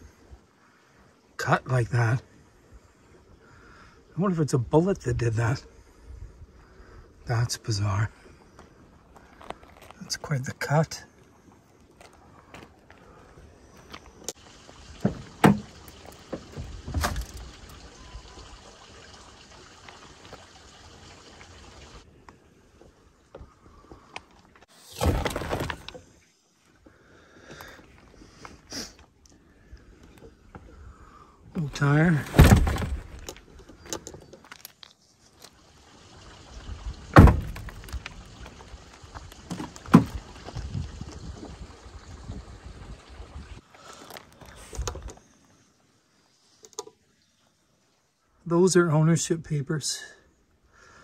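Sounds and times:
car door knocks and clunks: 15.0s - 15.7s, 37.2s - 37.7s
car doors thunking: 15.0s - 17.4s, 32.2s - 33.3s, 37.2s - 38.0s
wind noise on microphone: 40.0s - 43.6s.

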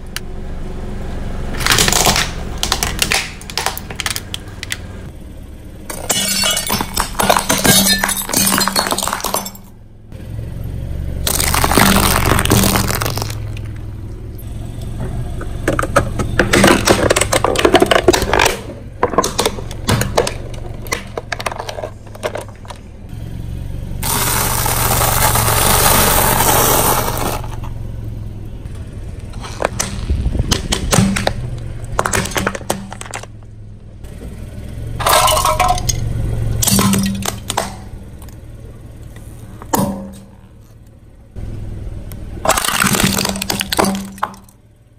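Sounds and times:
plastic cracking and crunching: 1.6s - 4.8s, 11.3s - 13.7s.

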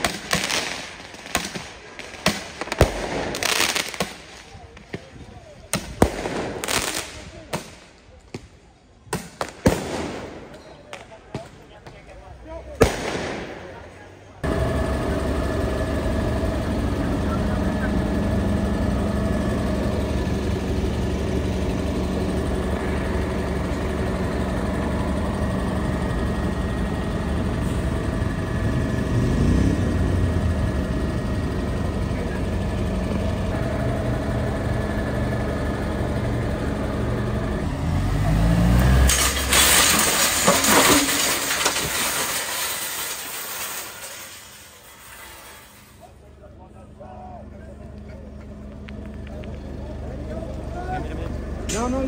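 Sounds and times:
heavy vehicle engine revving: 12.4s - 52.0s.

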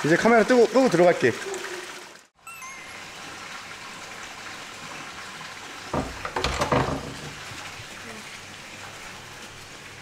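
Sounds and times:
wooden latch knocks and clunks: 5.9s - 7.4s.

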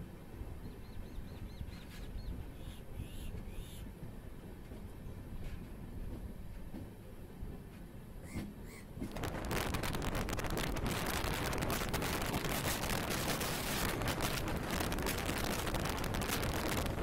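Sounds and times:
passenger train running: 0.0s - 17.0s
wind on microphone: 9.0s - 17.0s.

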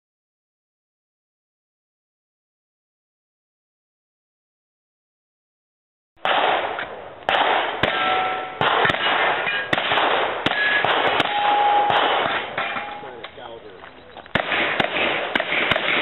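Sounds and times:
revolver shots: 6.2s - 13.3s.

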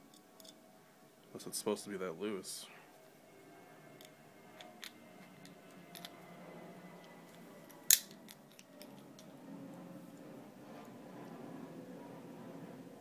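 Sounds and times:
small tool parts clicking: 4.0s - 6.2s, 7.7s - 9.3s.

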